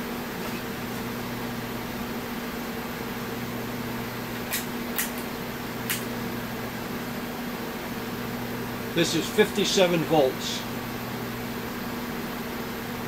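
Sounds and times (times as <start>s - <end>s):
electronics hum and hiss: 0.0s - 13.0s
sharp switch clicks: 5.9s - 6.1s.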